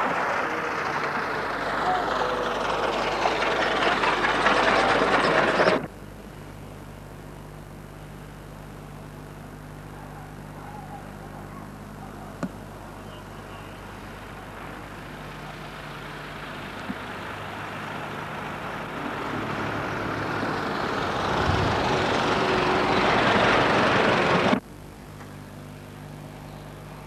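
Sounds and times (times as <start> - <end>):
steady low hum: 0.0 - 27.0
car passing by: 16.4 - 24.6.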